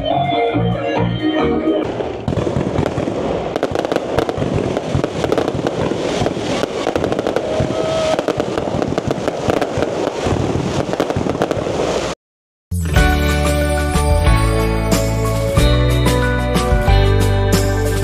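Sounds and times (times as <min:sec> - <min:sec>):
fireworks bangs and crackles: 0:01.8 - 0:12.2.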